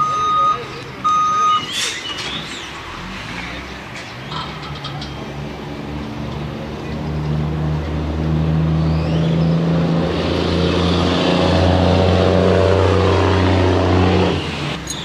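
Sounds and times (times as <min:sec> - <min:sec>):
truck diesel engine under load: 0:00.0 - 0:15.0.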